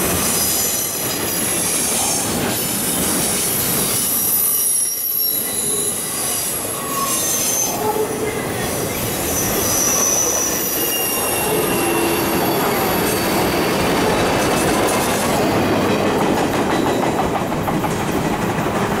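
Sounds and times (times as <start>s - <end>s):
freight train wheels rumbling: 0.0s - 19.0s
high-pitched wheel squeal: 3.6s - 13.9s.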